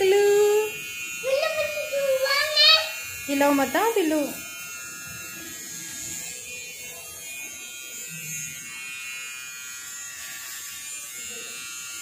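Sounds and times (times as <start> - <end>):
electric hair clipper buzzing: 0.0 - 12.0.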